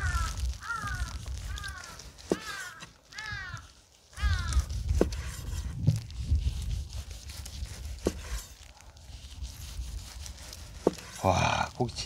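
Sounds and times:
crow cawing: 0.0s - 4.7s.

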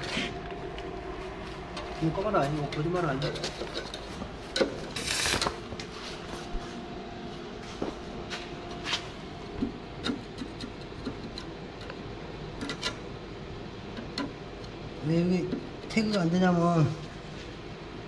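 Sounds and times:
welding arc crackles: 4.8s - 5.9s.

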